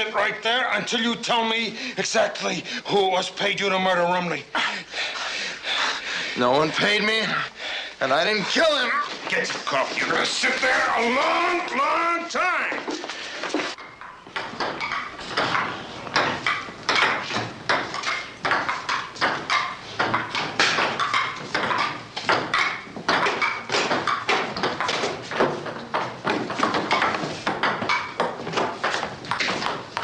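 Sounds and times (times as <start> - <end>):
table tennis balls clicking: 12.7 - 30.0.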